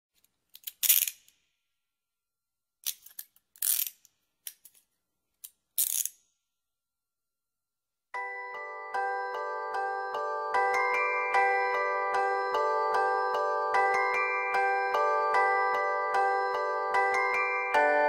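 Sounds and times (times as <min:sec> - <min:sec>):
music box melody: 0:08.2 - 0:18.0.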